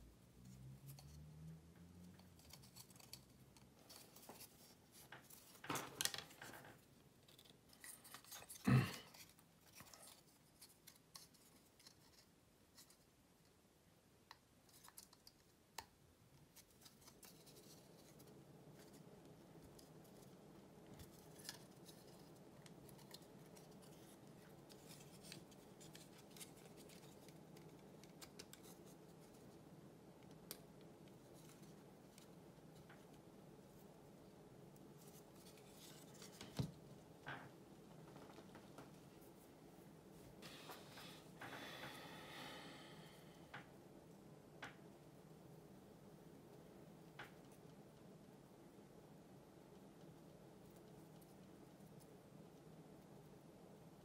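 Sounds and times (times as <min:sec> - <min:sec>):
faint steady hum: 0:00.0 - 0:54.0
plywood parts clicking and scraping: 0:02.2 - 0:12.2.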